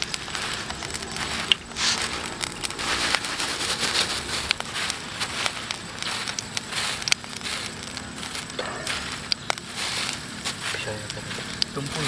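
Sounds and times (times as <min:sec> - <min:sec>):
food frying in hot oil: 0:00.0 - 0:12.0
oil spattering pops: 0:00.0 - 0:12.0.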